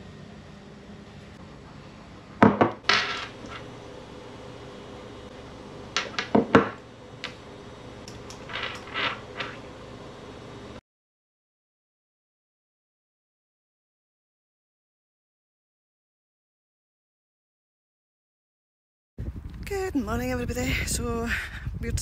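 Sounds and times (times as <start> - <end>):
low room hum: 0.0 - 10.8.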